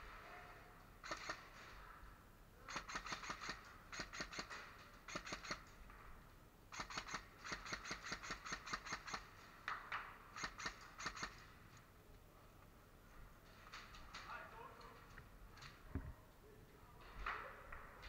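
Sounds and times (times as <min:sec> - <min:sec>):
airsoft gun rapid shots: 0:01.0 - 0:01.6, 0:02.7 - 0:05.6, 0:06.7 - 0:09.3, 0:10.4 - 0:11.4.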